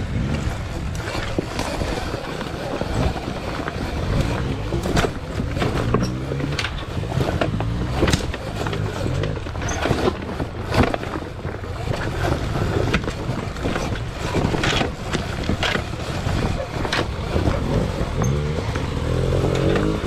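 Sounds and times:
electric motor drone: 17.5 - 20.0.

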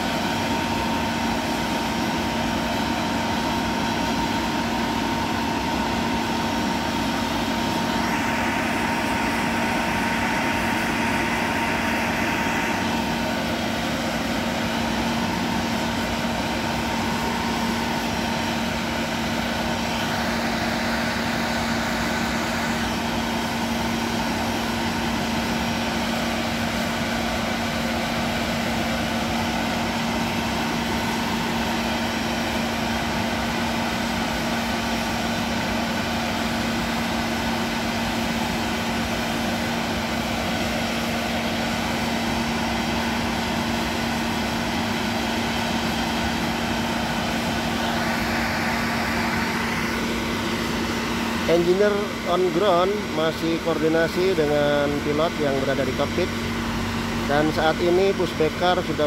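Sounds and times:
parked jet humming and whining: 0.0 - 59.0.

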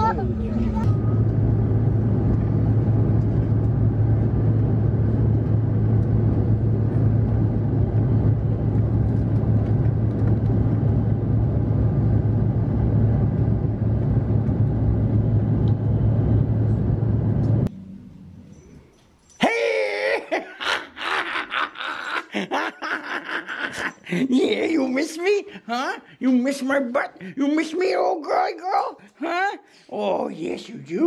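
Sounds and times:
aircraft engines drone: 0.0 - 19.3.

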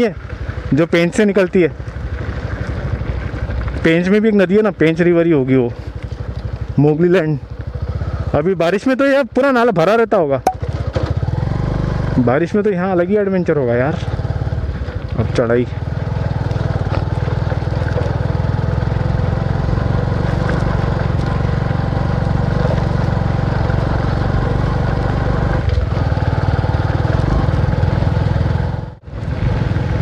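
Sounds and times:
motorcycle engine under load: 0.0 - 30.0.

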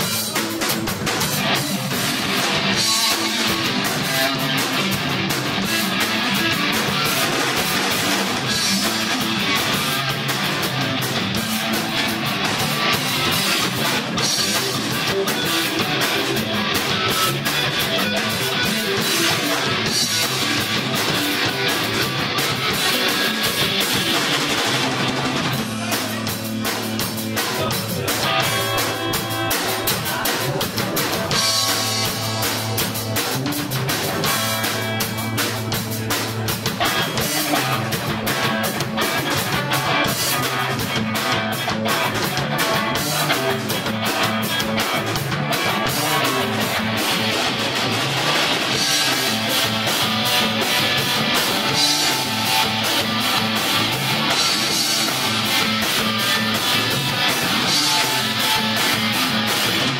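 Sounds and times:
drum kit: 0.0 - 59.9
electric guitar: 0.0 - 59.9.

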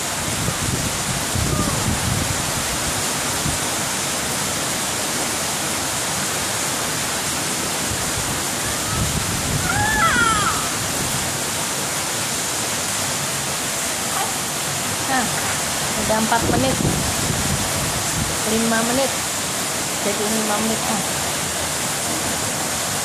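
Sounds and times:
baby squealing: 8.6 - 10.8.

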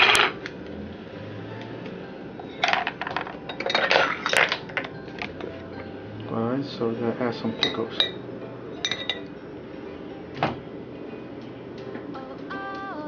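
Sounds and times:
dishes and utensils clattering: 0.0 - 0.5, 2.4 - 5.9, 7.2 - 9.4.

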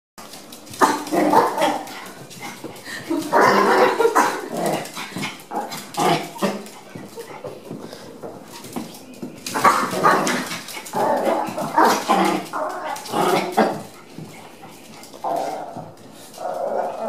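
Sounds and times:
small dogs barking: 0.7 - 2.2, 3.3 - 7.2.

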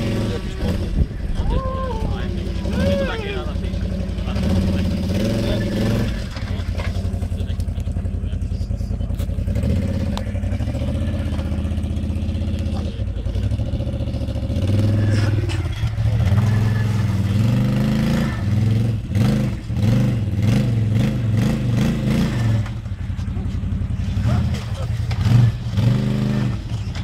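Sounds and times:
quad bike engine revving: 0.0 - 27.0.

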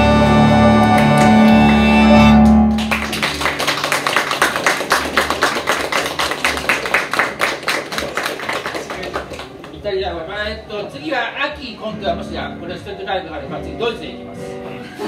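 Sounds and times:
keyboard chord ringing: 0.0 - 3.3
audience applause: 0.7 - 9.7.

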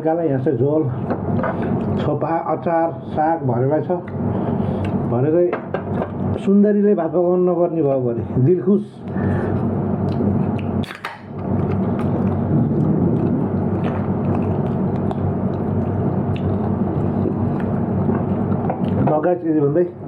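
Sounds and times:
steady low drone: 8.3 - 19.1
person chewing food: 10.0 - 19.0.

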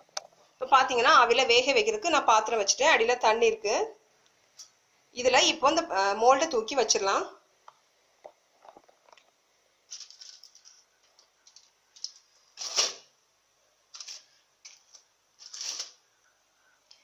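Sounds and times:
foil rustling: 9.9 - 10.8, 12.0 - 13.1, 13.9 - 16.0.

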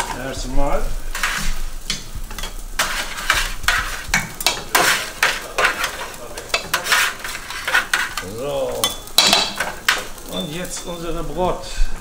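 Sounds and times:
metal spatula scraping meat on tray: 1.1 - 11.2.

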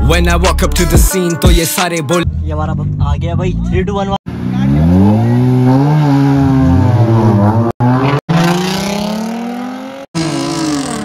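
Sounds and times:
car engines revving: 2.3 - 11.0
cars accelerating at full throttle: 4.3 - 11.0.

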